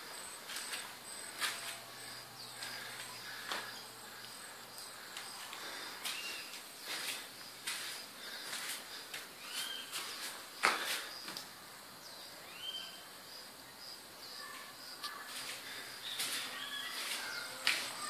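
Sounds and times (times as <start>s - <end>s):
insect chirping: 0.0s - 18.0s
short bird calls: 9.4s - 10.0s.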